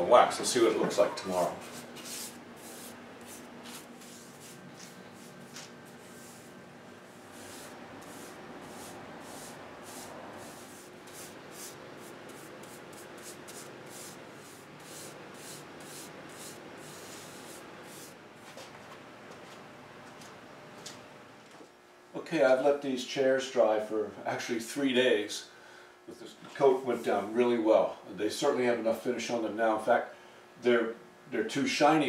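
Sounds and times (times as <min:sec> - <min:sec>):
hand rubbing wooden chair frame: 0:00.9 - 0:06.5, 0:07.1 - 0:18.2.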